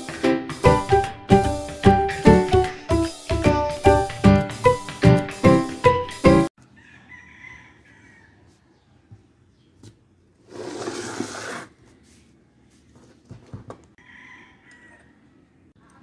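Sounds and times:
distant rooster crowing: 6.6s - 9.1s, 14.0s - 15.5s
parts scraping on tiled floor: 10.4s - 12.3s.

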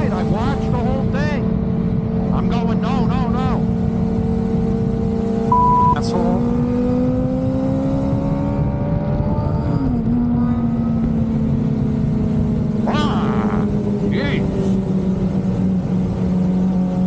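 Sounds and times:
motorcycle engine running: 0.0s - 17.0s
loud steady beep: 5.5s - 6.0s.

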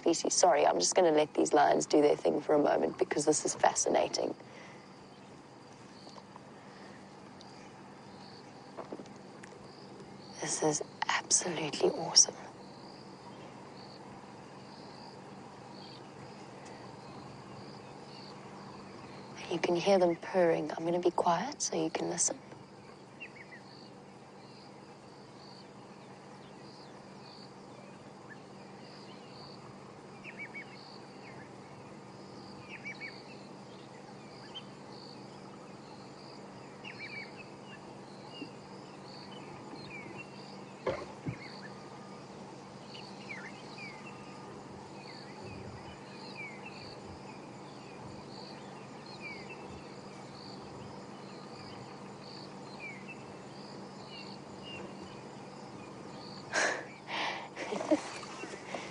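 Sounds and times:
birds chirping: 0.0s - 58.9s
insect calling in a pulse: 0.0s - 58.9s
lions rumbling purrs: 22.2s - 58.9s.

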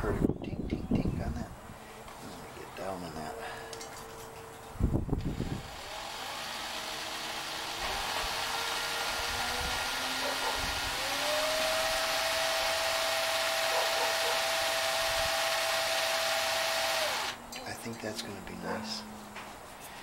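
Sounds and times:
cordless drill whining: 5.2s - 17.4s.

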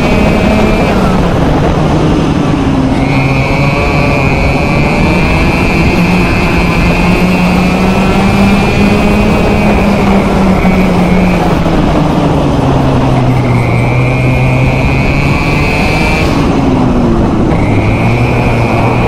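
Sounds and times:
two-stroke kart engine: 0.0s - 19.0s.

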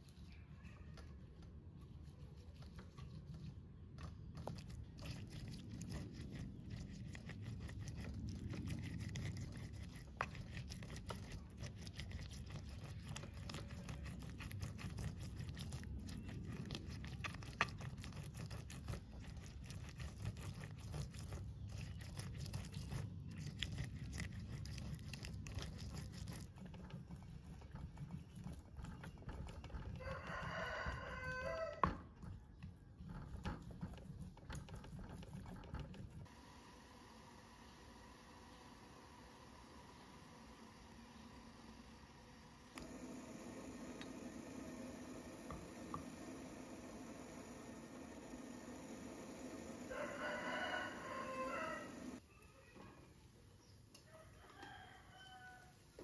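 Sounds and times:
pestle grinding in stone mortar: 2.6s - 36.3s.

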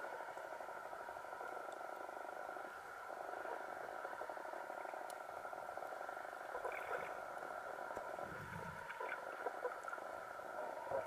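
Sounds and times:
underwater steady hum: 0.0s - 11.0s
faint clicks: 1.3s - 2.1s, 3.4s - 8.1s.

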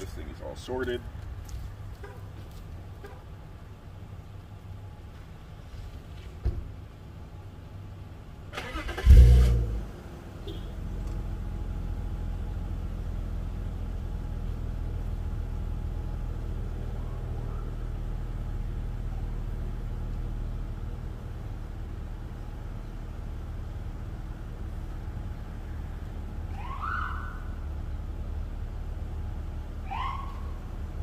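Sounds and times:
car engine starting and idling: 7.9s - 31.0s.

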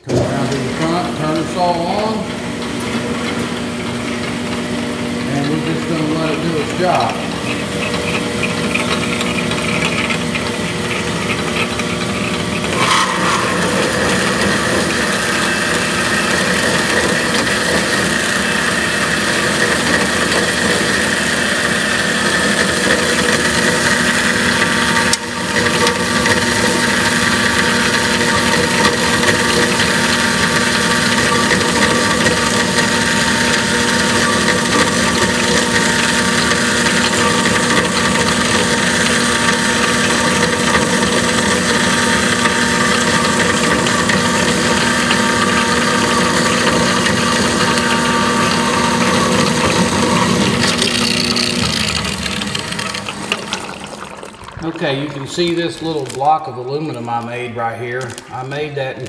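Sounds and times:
bandsaw cutting steel: 12.3s - 53.4s.

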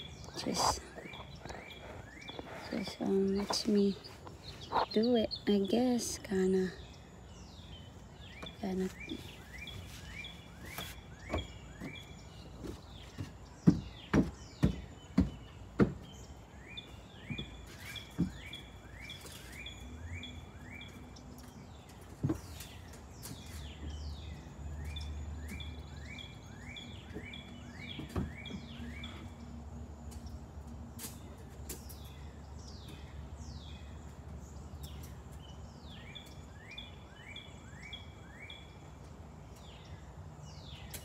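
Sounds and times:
bird rising chirp: 0.0s - 13.2s.

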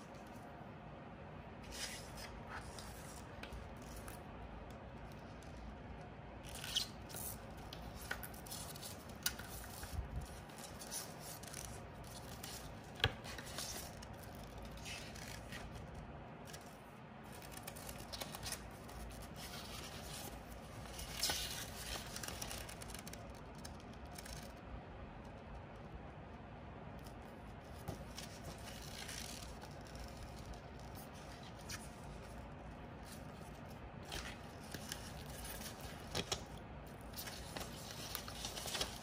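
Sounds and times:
sharp paper ticks: 21.1s - 24.6s
paper envelope rustling: 33.0s - 39.0s.

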